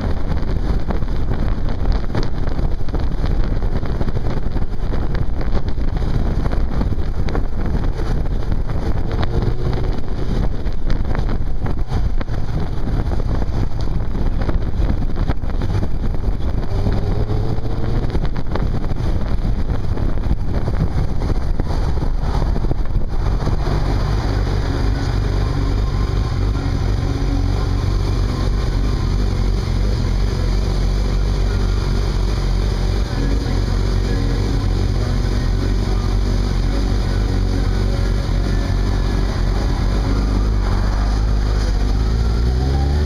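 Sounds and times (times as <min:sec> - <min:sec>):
wind buffeting microphone: 0:00.0 - 0:34.1
motorcycle engine running: 0:00.0 - 0:43.0.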